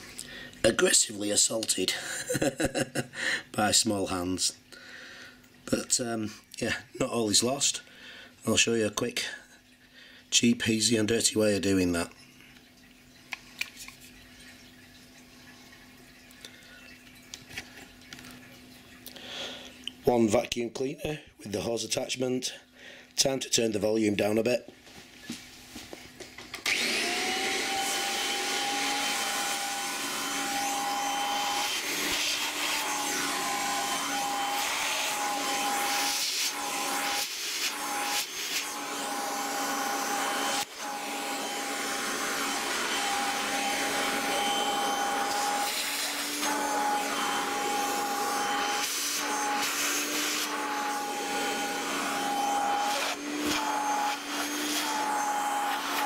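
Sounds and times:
vacuum cleaner whining: 0:26.4 - 0:56.0.

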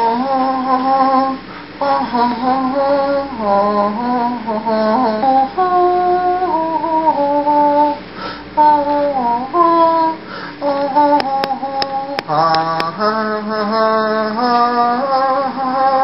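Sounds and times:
person singing slow melody: 0:00.0 - 0:16.0
sharp clicks: 0:11.1 - 0:13.0.

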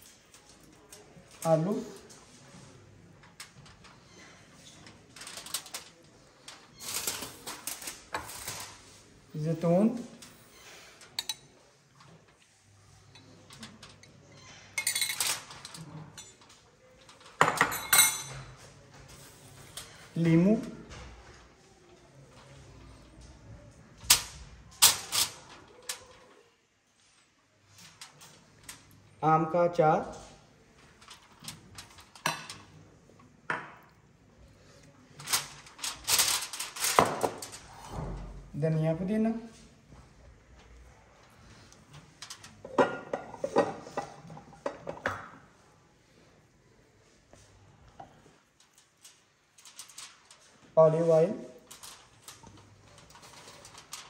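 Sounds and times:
aluminium foil crinkling: 0:00.0 - 0:09.2, 0:24.0 - 0:26.4, 0:30.1 - 0:33.3, 0:34.5 - 0:37.7, 0:48.4 - 0:54.0.

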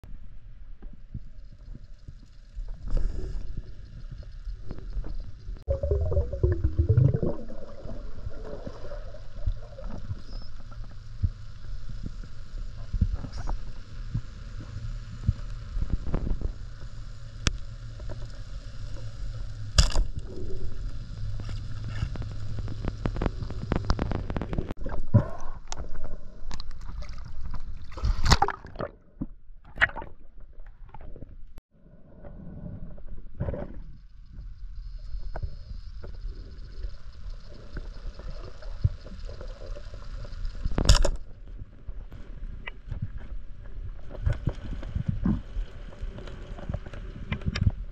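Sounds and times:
steady low rumble: 0:00.0 - 0:27.9
water sloshing and gurgling: 0:00.8 - 0:14.5, 0:17.9 - 0:34.4
small clicks and knocks: 0:40.6 - 0:41.3.

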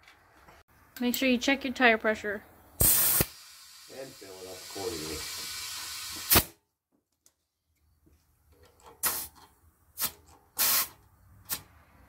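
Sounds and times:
compressed air hissing: 0:02.8 - 0:06.5, 0:09.0 - 0:09.4, 0:10.0 - 0:11.7.

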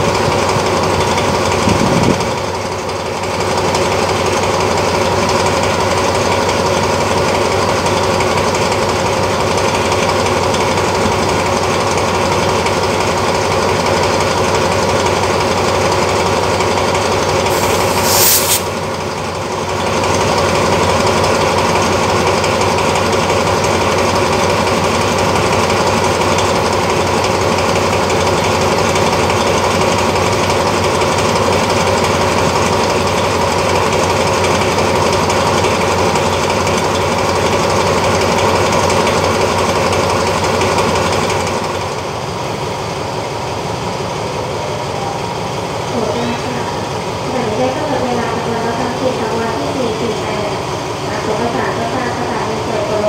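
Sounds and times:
high hissing burst: 0:17.5 - 0:18.9.

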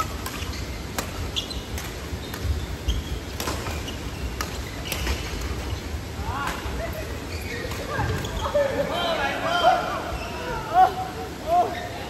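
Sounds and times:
racket hitting shuttlecock: 0:00.0 - 0:02.5, 0:03.3 - 0:05.6
shoes squeaking on court: 0:00.0 - 0:06.0, 0:07.3 - 0:08.6
low hum of hall: 0:00.0 - 0:12.0.

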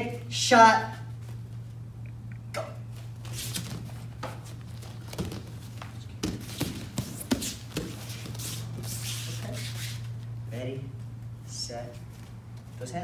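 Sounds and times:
steady low hum: 0:00.0 - 0:13.0
bare feet thumping on mats: 0:03.2 - 0:09.4.

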